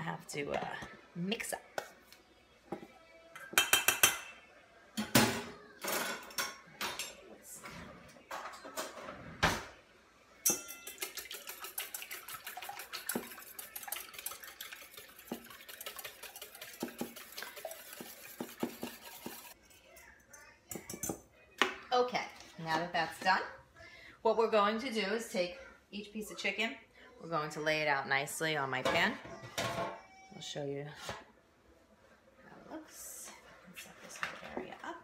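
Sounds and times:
whisk clinking against bowl: 10.5s - 19.6s
utensil knocking on dishes: 17.9s - 19.6s.

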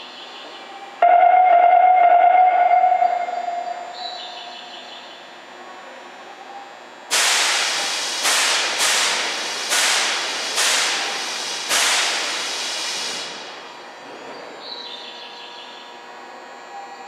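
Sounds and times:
train venting compressed air: 7.1s - 13.6s.

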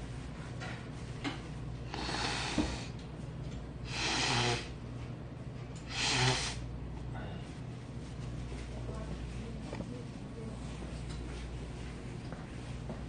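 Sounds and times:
man blowing his nose: 1.9s - 2.9s, 3.9s - 4.8s, 5.9s - 6.7s.

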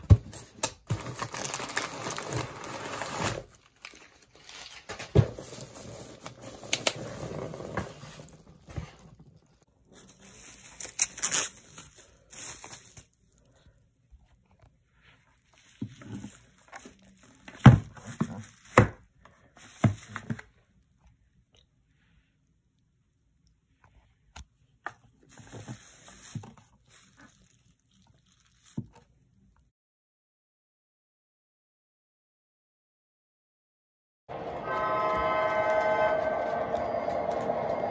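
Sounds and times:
bubble wrap crinkling: 0.3s - 20.9s, 25.2s - 29.5s.

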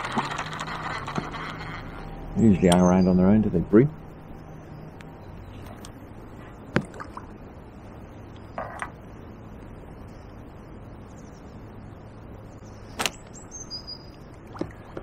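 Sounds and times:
high bird chirp: 12.6s - 14.2s.

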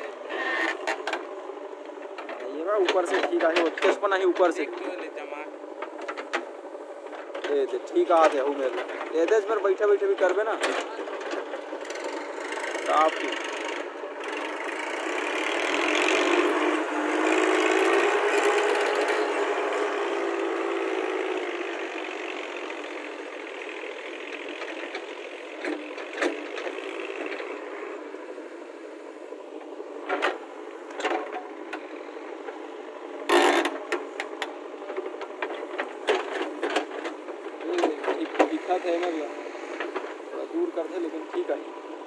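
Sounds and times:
tractor engine pulling away: 0.0s - 42.0s.

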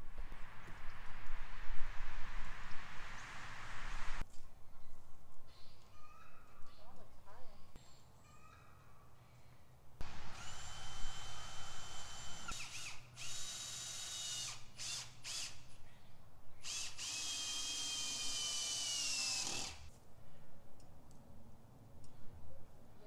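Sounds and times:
cordless drill driving screws: 10.0s - 15.7s, 16.6s - 19.9s.

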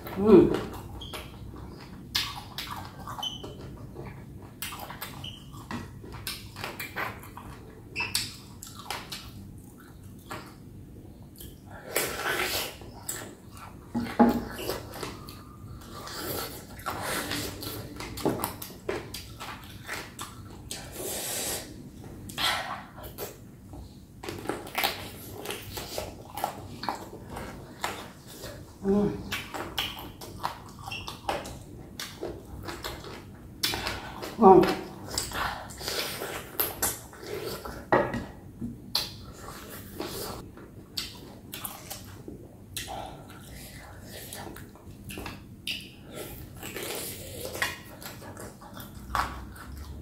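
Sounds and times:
chewing and sucking mouth sounds: 0.0s - 10.6s, 11.2s - 37.9s, 38.9s - 50.0s
wet chewing and sucking: 24.2s - 37.9s.

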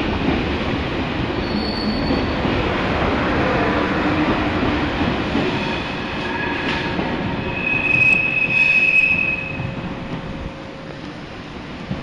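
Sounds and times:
high-speed train rumble: 0.0s - 12.0s
steel wheel squeal: 7.4s - 9.6s.

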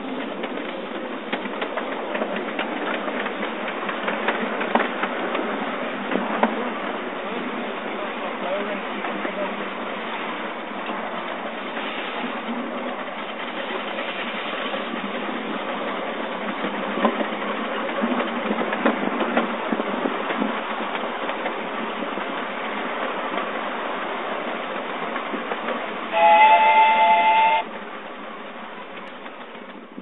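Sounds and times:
train wheels running on track: 0.0s - 30.0s
steam whistle blowing: 26.1s - 27.7s.

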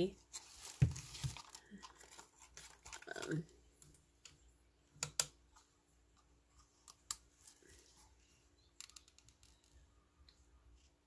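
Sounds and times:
plastic lantern handling: 0.3s - 3.4s.

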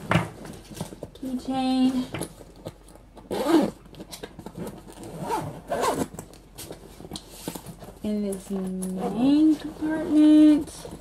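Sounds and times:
zipper being pulled: 3.2s - 3.9s, 4.5s - 6.2s, 8.8s - 10.5s.

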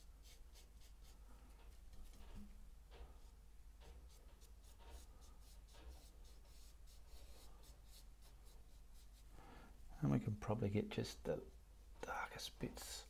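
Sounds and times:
paintbrush strokes on canvas: 0.0s - 2.5s, 3.1s - 9.4s.

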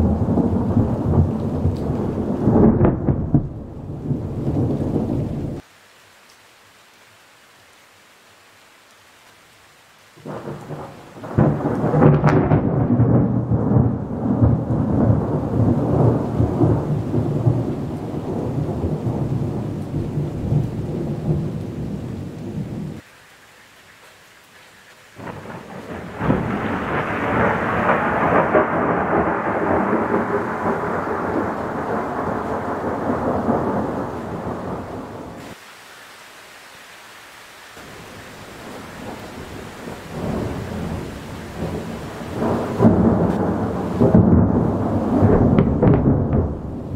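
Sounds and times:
thunder crack: 0.0s - 5.6s, 10.2s - 21.4s, 25.2s - 35.2s, 41.6s - 46.9s
thunder rumbling: 0.0s - 5.6s, 10.2s - 23.0s, 25.2s - 35.5s, 38.6s - 46.9s
steady rain hiss: 0.0s - 46.9s.

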